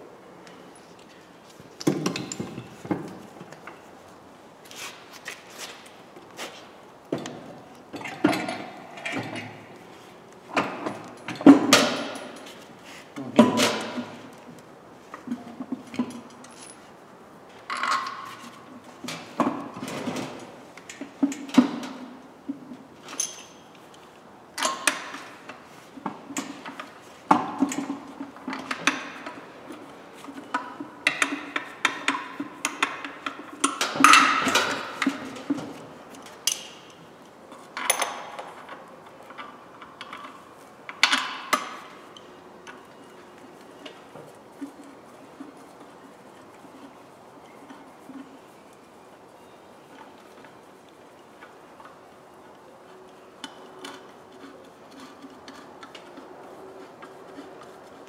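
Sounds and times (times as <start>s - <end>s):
metal clanks and knocks: 1.8s - 3.9s, 7.1s - 9.7s, 10.5s - 12.6s, 26.2s - 36.9s.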